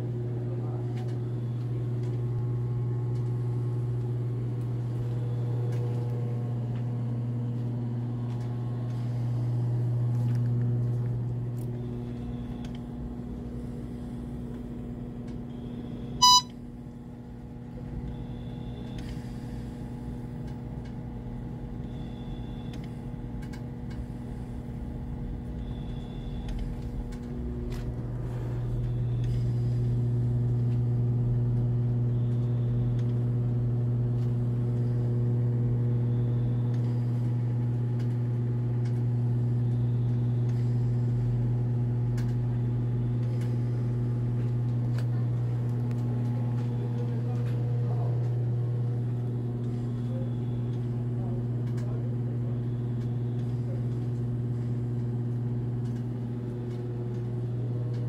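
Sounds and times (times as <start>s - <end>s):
medical equipment humming: 0.0s - 58.0s
short electronic beep: 16.2s - 16.5s.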